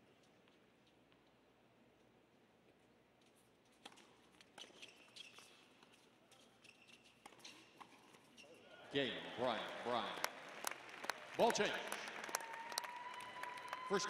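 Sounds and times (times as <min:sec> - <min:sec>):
sneakers squeaking on court: 0:03.8 - 0:08.8.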